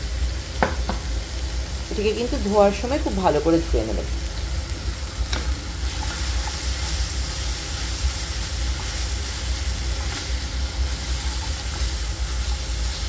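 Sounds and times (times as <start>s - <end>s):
food sizzling in a wok: 0.0s - 13.0s
spatula stirring: 5.4s - 13.0s.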